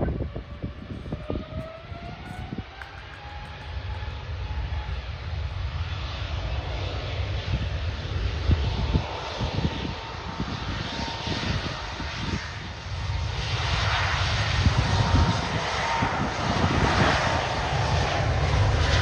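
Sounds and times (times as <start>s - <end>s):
jet engines at takeoff: 0.0s - 19.0s.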